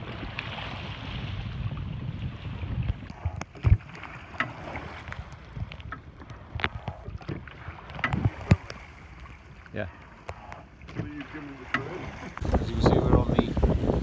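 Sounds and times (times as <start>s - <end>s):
water against hull: 0.0s - 14.0s
oars knocking in rowlocks: 2.9s - 13.3s.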